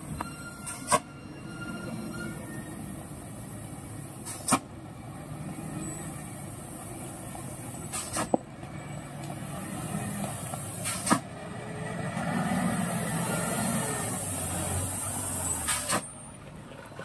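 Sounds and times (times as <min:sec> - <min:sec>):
truck diesel engine: 0:00.0 - 0:17.0.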